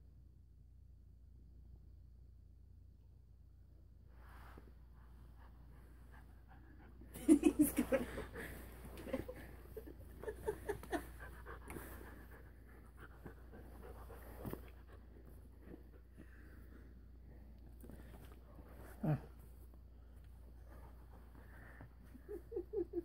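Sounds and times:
puppy panting: 5.4 - 16.5.

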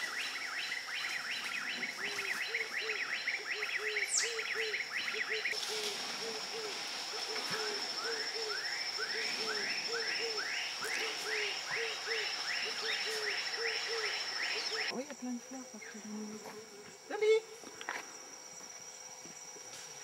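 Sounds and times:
low hooting animal calls: 0.0 - 14.9
steady high whine: 0.0 - 20.0.

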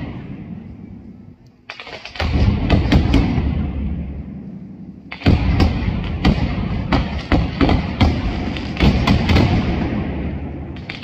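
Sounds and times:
continuous low rumble: 0.0 - 11.0
firecracker heavy bangs: 1.8 - 4.3, 5.1 - 11.0.

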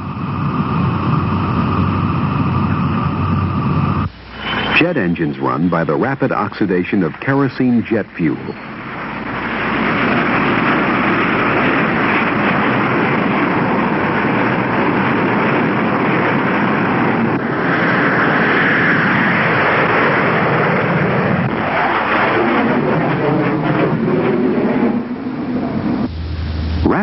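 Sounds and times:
high hiss: 0.0 - 15.4, 26.0 - 27.0
jet engines at full power: 0.0 - 27.0.

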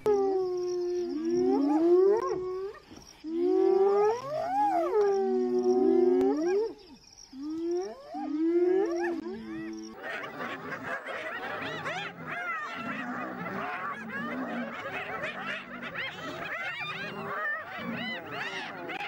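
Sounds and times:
hyenas whining calls: 7.4 - 19.0.

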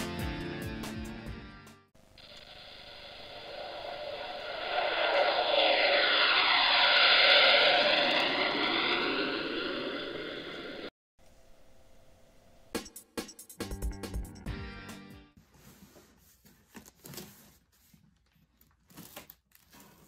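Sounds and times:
fighter jet flying past: 2.5 - 10.9.

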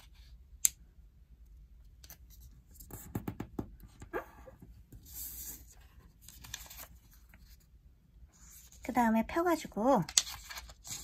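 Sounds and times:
paper rustle: 5.0 - 7.6, 10.0 - 11.0.

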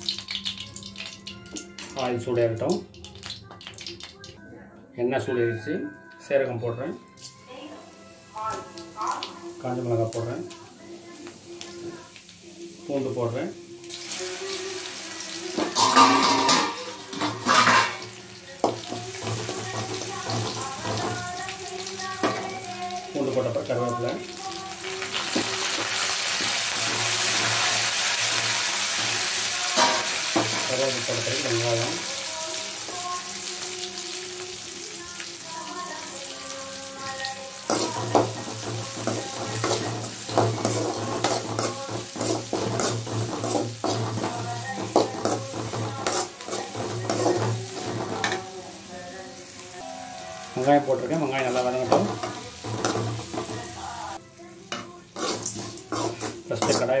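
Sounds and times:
garlic sizzling in hot oil: 0.0 - 4.1, 7.2 - 54.2, 55.1 - 57.0
metal ladle scraping pan: 15.6 - 18.1, 37.6 - 48.5, 55.2 - 57.0
ladle clinking against pan: 15.7 - 18.0.

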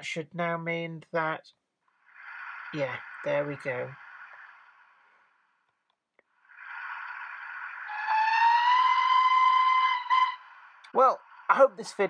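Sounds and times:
steam whistle: 7.9 - 10.4.

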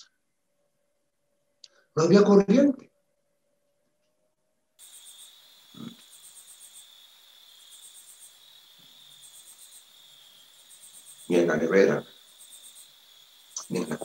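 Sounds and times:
crickets chirping: 4.8 - 14.0.

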